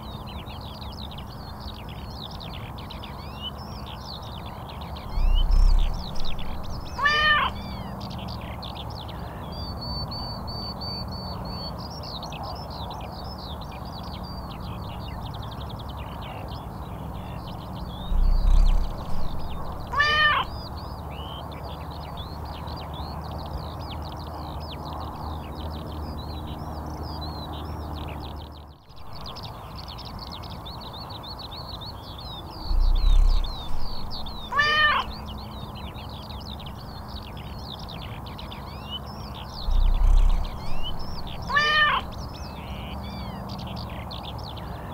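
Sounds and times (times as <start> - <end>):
small birds chirping: 0.0 - 44.9
cat meowing: 6.9 - 7.6, 19.9 - 20.5, 34.5 - 35.2, 41.5 - 42.1.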